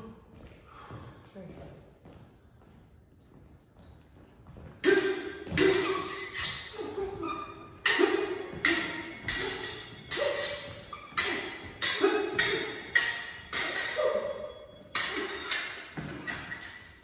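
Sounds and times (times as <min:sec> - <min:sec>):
steel blades clashing: 0:04.8 - 0:07.2, 0:07.8 - 0:17.0.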